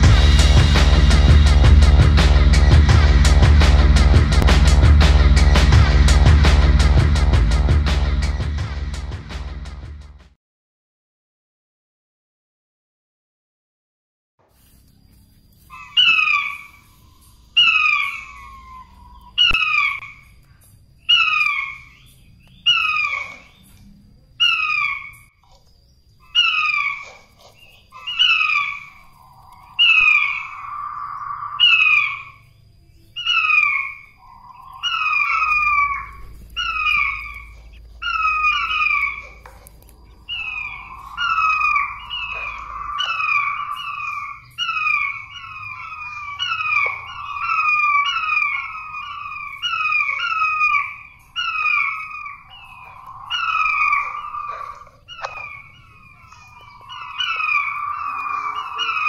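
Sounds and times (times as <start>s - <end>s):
lower steady note: 0.0s - 10.2s
quail falling whistled notes: 15.7s - 20.2s, 26.3s - 32.4s, 33.2s - 59.0s.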